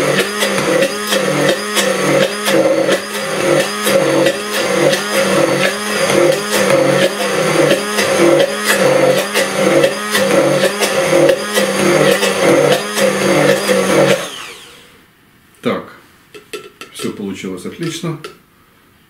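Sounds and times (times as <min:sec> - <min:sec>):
immersion blender running: 0:00.0 - 0:15.0.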